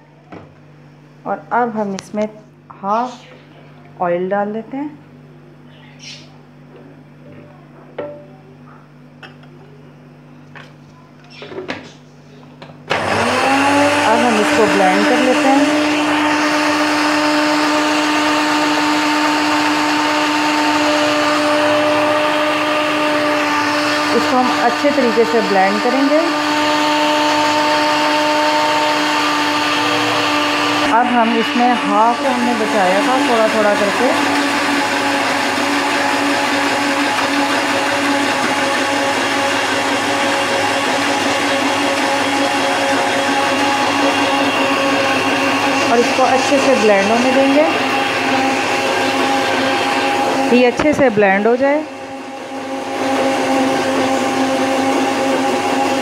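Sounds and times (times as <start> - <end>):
blender running: 12.6 - 56.0.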